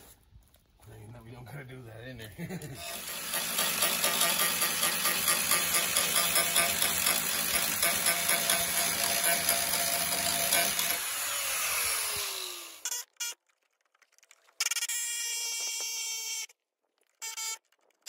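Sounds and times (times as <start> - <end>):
power tool running and spinning down: 2.8 - 12.8.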